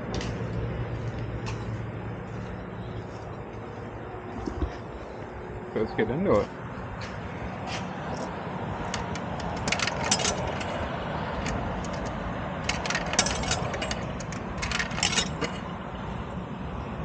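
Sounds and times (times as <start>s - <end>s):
steady low hum: 0.0s - 17.0s
coins clinking into coin box: 9.0s - 10.8s, 11.4s - 15.6s.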